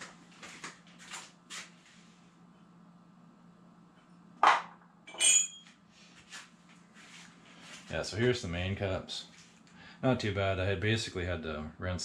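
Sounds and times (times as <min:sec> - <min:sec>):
ringing metallic clink: 0:05.1 - 0:05.7.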